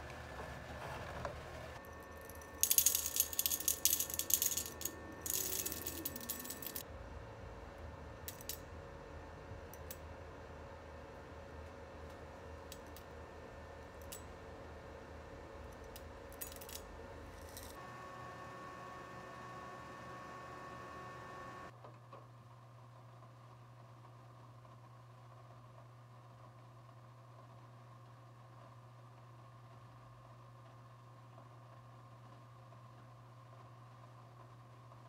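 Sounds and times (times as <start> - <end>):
single beans clinking: 1.9 - 6.8
coffee beans rattling into bowl: 2.1 - 6.8.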